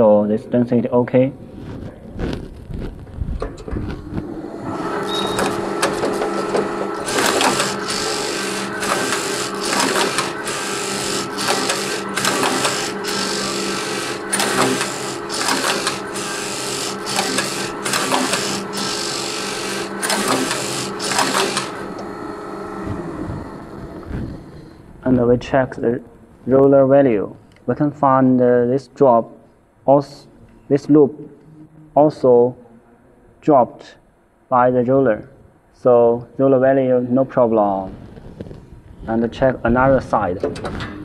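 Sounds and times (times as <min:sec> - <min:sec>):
knitting machine motor hum: 0:03.8 - 0:24.8.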